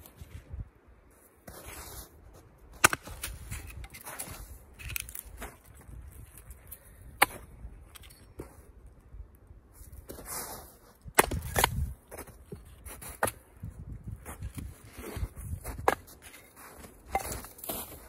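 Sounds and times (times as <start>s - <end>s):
axe striking log: 2.8s - 4.0s, 7.2s - 8.0s, 11.0s - 11.9s.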